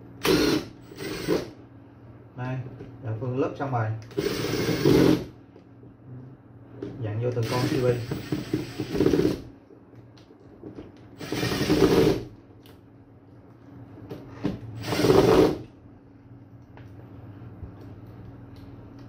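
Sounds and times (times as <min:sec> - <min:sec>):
cordless screwdriver running: 0:00.2 - 0:01.5, 0:04.1 - 0:05.3, 0:07.4 - 0:09.4, 0:11.2 - 0:12.2, 0:14.8 - 0:15.6.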